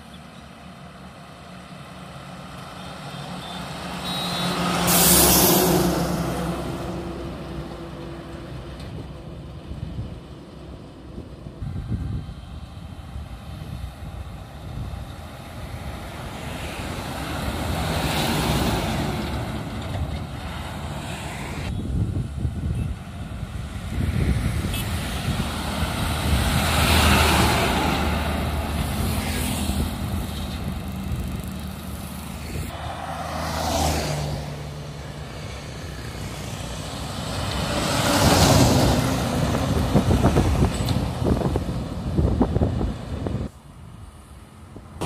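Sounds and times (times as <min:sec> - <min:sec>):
lorry engines droning: 0:23.0 - 0:45.0.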